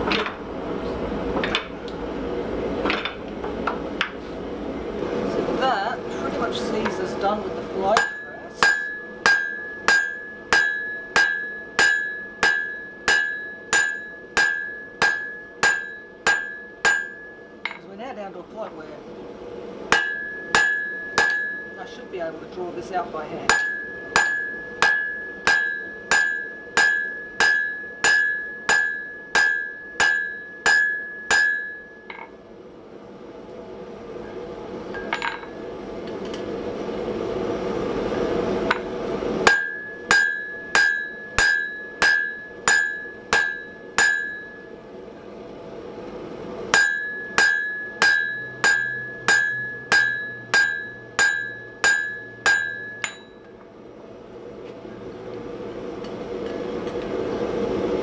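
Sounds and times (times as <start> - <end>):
hammer blows on ringing anvil: 7.9 - 17.8, 19.9 - 21.9, 23.5 - 32.4, 34.9 - 35.6, 38.7 - 44.8, 46.7 - 53.6.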